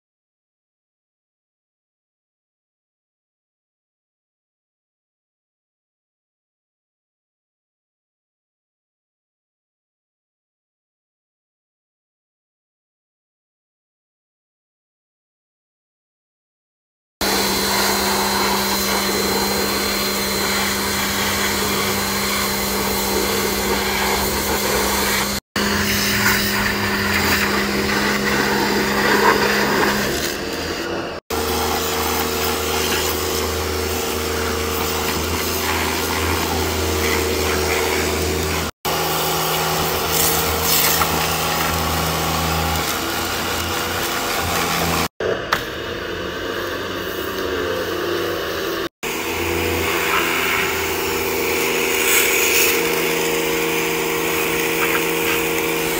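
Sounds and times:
water jet spraying: 17.2s - 45.1s, 49.0s - 55.9s
pressure washer motor hum: 17.2s - 55.9s.

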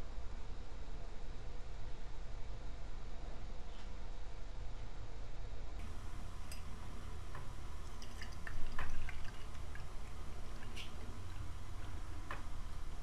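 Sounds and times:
sharp drips: 5.8s - 13.0s
tea pouring into glass mug: 5.8s - 13.0s.

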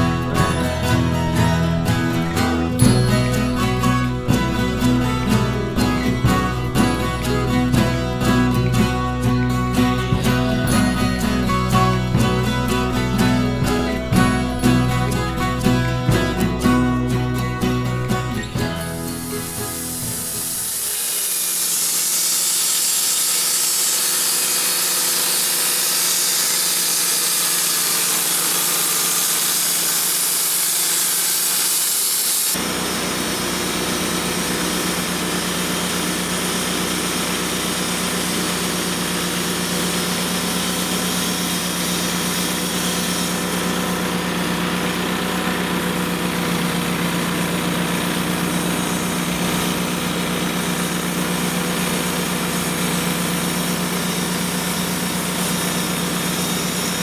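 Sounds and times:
sawmill engine under load: 0.0s - 57.0s
band blade cutting log hiss: 18.4s - 44.9s.

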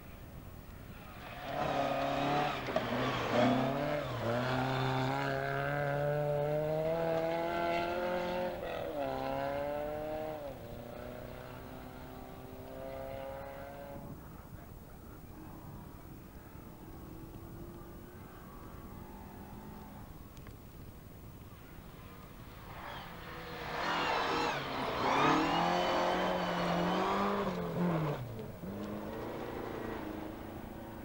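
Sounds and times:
rally car engine at full throttle: 1.0s - 14.1s, 22.5s - 31.0s.

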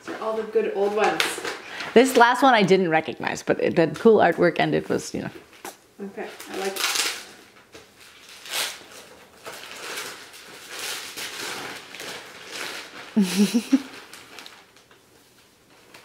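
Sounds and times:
wrapping paper rustling: 0.0s - 2.6s, 6.2s - 16.0s.

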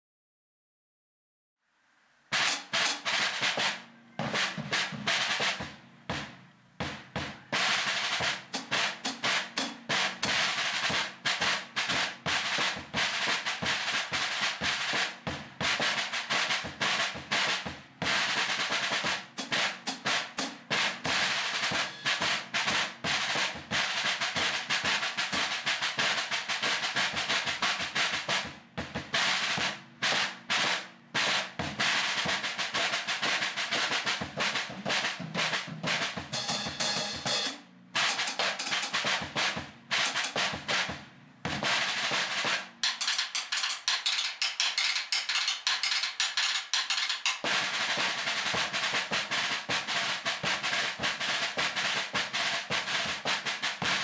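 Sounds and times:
muted snare drum strokes and rolls: 2.3s - 54.0s.

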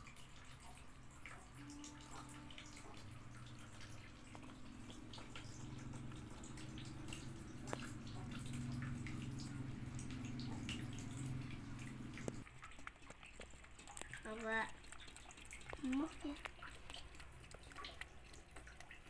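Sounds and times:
kitten lapping milk: 0.0s - 19.0s
steady low hum: 1.1s - 12.4s.

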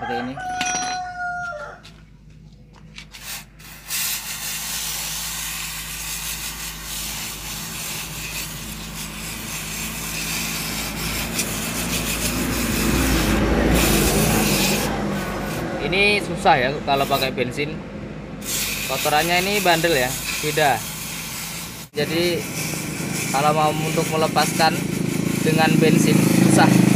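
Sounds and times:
aerosol spray hissing: 3.2s - 15.7s, 16.9s - 17.4s, 18.4s - 26.9s.

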